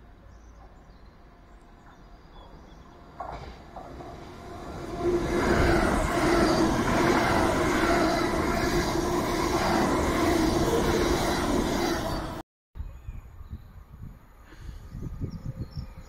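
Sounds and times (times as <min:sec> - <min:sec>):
train wheels rumbling on rails: 0:00.1 - 0:12.4.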